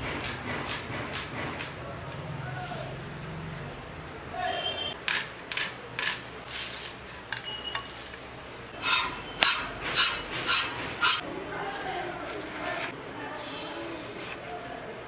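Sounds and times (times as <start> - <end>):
blade slicing gourds: 8.8 - 11.2.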